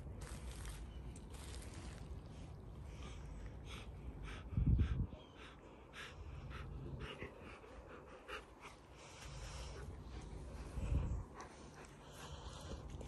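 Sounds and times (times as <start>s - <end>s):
fur and fabric rustles: 0.2s - 2.5s.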